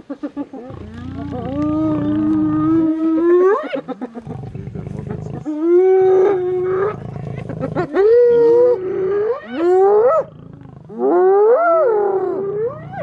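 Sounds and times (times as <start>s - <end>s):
lioness growling: 0.6s - 13.0s
hyenas wailing: 5.0s - 13.0s.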